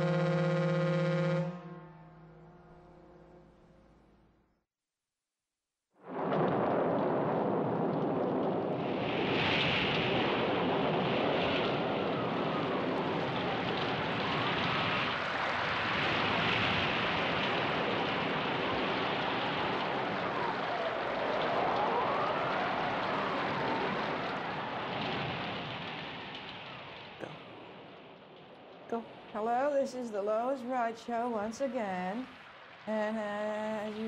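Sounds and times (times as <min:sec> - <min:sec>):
sea surf and waves: 0:06.1 - 0:28.0, 0:31.3 - 0:34.0.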